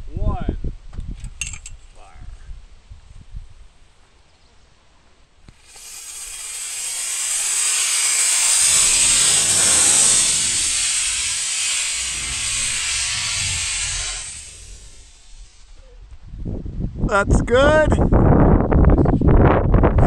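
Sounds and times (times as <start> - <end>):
rocket motor hissing: 5.5 - 15.9.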